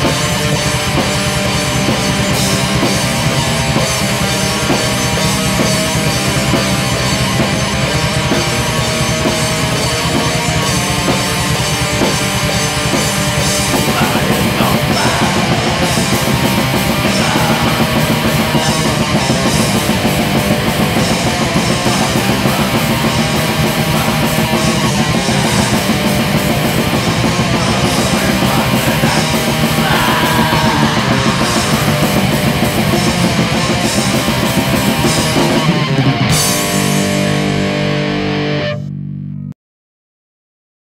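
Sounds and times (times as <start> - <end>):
drums and cymbals: 0.0 - 37.8
distorted guitars: 0.0 - 39.6.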